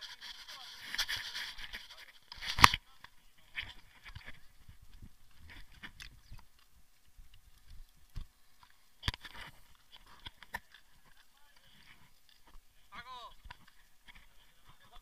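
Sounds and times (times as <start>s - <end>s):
camera handling noise: 0.8s - 2.8s.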